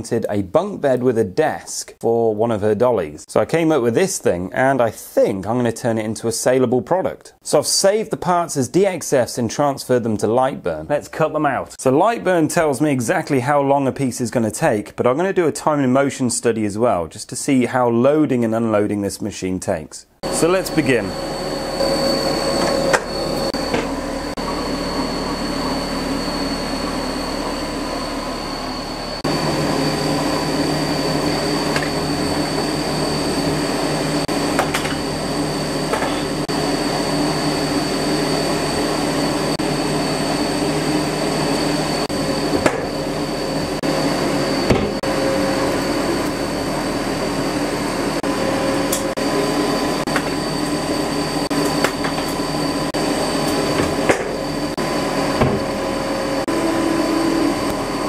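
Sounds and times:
high whine: 0:20.2 - 0:58.0
laser cutter fans whirring: 0:20.2 - 0:58.0.

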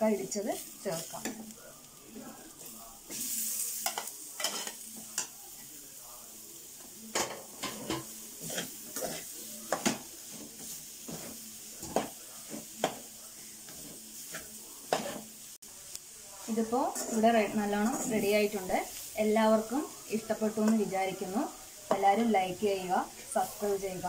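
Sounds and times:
faint pan sizzle: 0:00.0 - 0:24.0
metal spatula scraping a pan: 0:03.1 - 0:05.4, 0:07.2 - 0:15.4.

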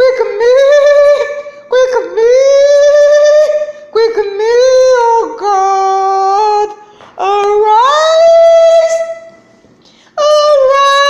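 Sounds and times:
woman singing unaccompanied: 0:00.0 - 0:09.4, 0:10.2 - 0:11.0
singer breathing: 0:09.8 - 0:10.2.

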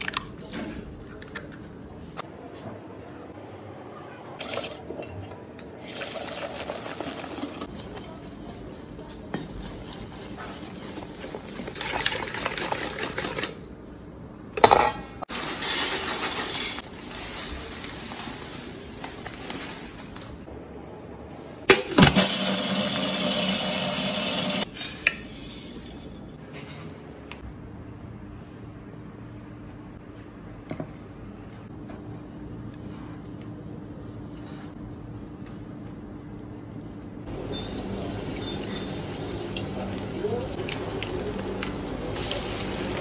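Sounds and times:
whisk rattling in metal bowl: 0:07.6 - 0:13.6.

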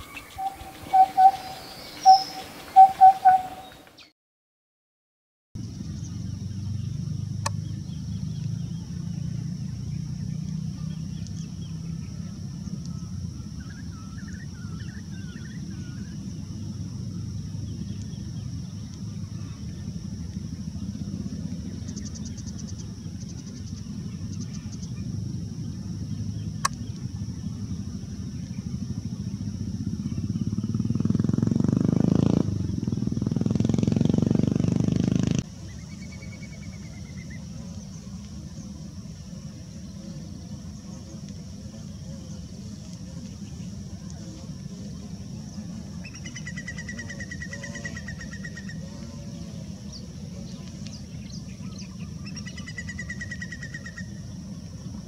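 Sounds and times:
faint high hiss: 0:00.0 - 0:04.1
low outdoor rumble: 0:00.0 - 0:04.1, 0:05.6 - 0:55.0
faint chirps and clicks: 0:07.4 - 0:08.8, 0:10.4 - 0:12.0, 0:12.7 - 0:13.1, 0:17.9 - 0:20.5, 0:26.4 - 0:27.1, 0:28.4 - 0:28.7, 0:35.6 - 0:44.5, 0:45.6 - 0:54.1.

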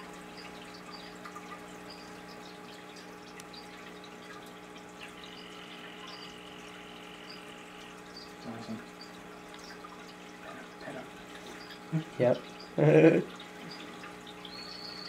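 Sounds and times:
steady low hum: 0:00.0 - 0:15.0
frog calling: 0:05.2 - 0:09.1.

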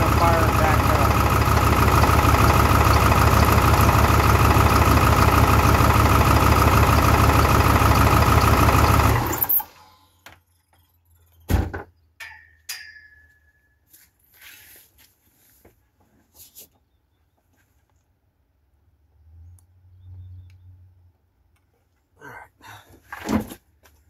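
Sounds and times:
diesel engine idling rough: 0:00.0 - 0:10.0.

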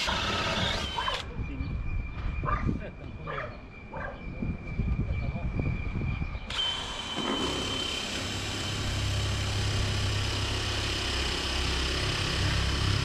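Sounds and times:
engine running: 0:06.5 - 0:13.0.

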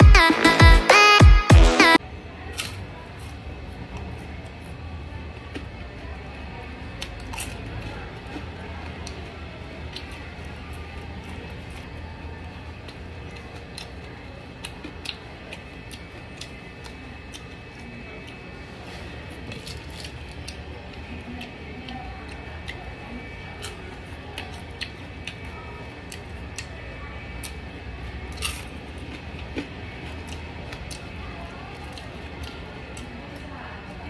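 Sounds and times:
chewing crunches: 0:07.0 - 0:26.7, 0:28.3 - 0:33.4.

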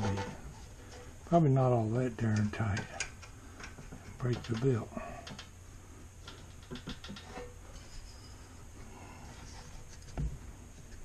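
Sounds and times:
belt and pulleys clicking and scraping: 0:02.3 - 0:05.5, 0:06.2 - 0:08.5.

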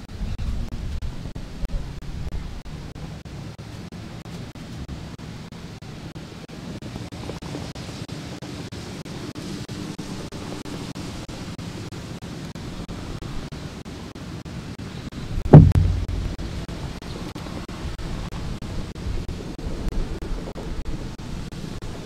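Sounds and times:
outdoor rushing noise: 0:00.0 - 0:22.0
loud low thump: 0:15.4 - 0:16.7.

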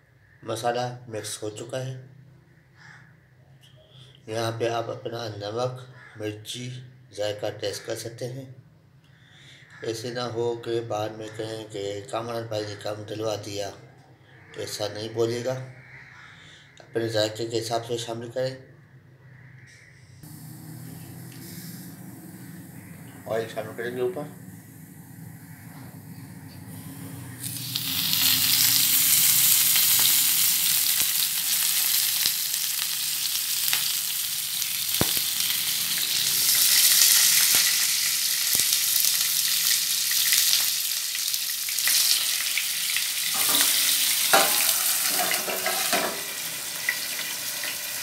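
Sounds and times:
hot oil sizzling in a pan: 0:20.2 - 0:25.6, 0:26.7 - 0:48.0
utensils clattering on a pan: 0:43.3 - 0:47.8.

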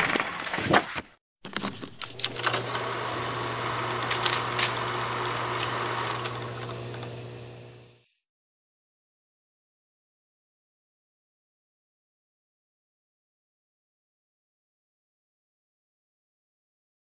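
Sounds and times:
film projector whirring: 0:01.5 - 0:08.2.

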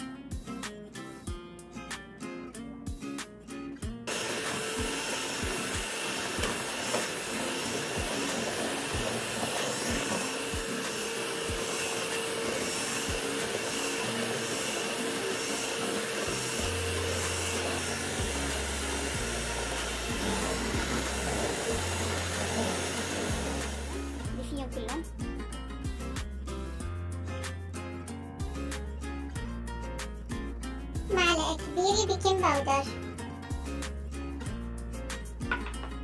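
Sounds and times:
background music with bass line: 0:00.0 - 0:04.1, 0:16.4 - 0:36.0
electric hand mixer whisking batter: 0:04.1 - 0:24.6.

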